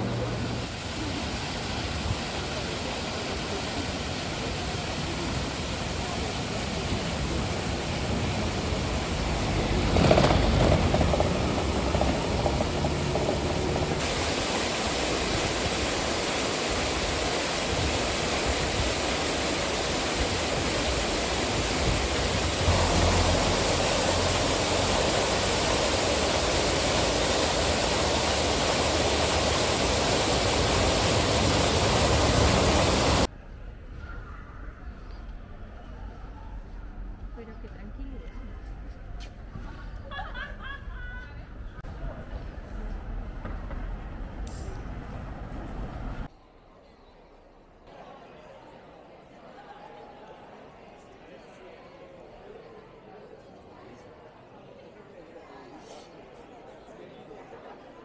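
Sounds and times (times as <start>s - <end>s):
fountain water rushing: 0.0s - 33.3s
murmur of crowd voices: 46.3s - 58.0s.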